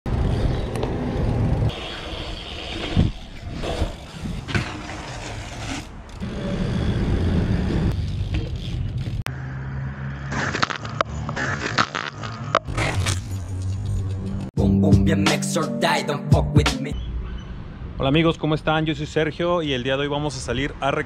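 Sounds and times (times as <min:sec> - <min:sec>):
bike tyres rolling on pavement: 0:00.1 - 0:06.2.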